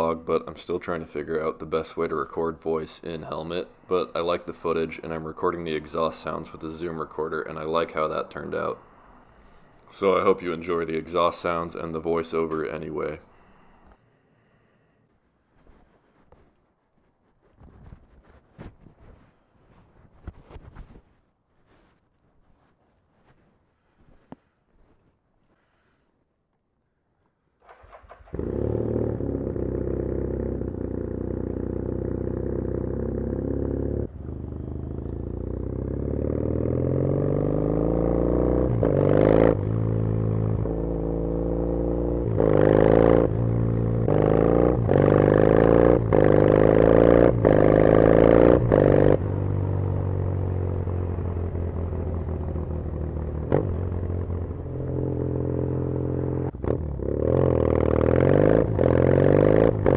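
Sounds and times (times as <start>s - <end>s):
motorcycle engine revving: 27.6s - 59.9s.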